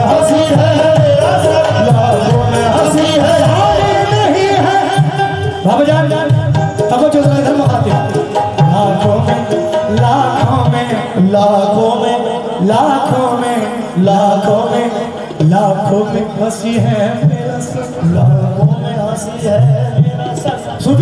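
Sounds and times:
hand drums playing: 0.0 - 21.0
harmonium melody: 0.0 - 21.0
person singing: 0.0 - 21.0.

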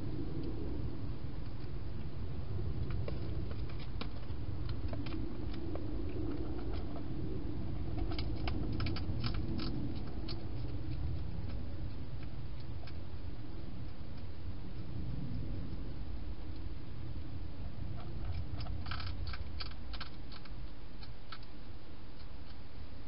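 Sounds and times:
steady low hum: 0.0 - 23.0
hedgehog chewing: 2.6 - 15.8, 17.6 - 22.6.

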